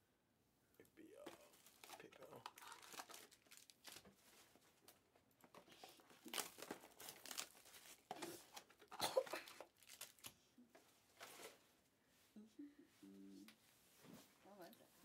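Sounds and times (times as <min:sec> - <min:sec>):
foil wrappers crinkling and tearing: 0:01.2 - 0:10.4.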